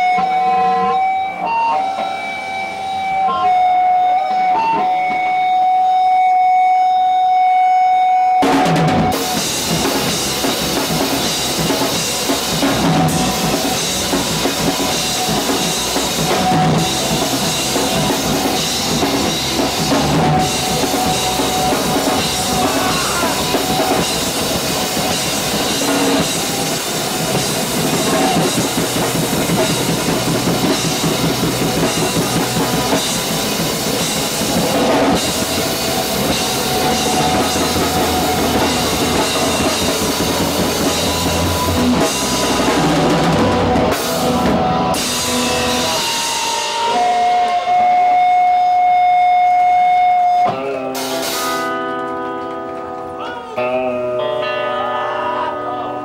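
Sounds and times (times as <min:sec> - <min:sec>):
cymbals: 0:00.0 - 0:51.8
rock band playing live: 0:00.0 - 0:56.0
bass drum: 0:08.4 - 0:46.2.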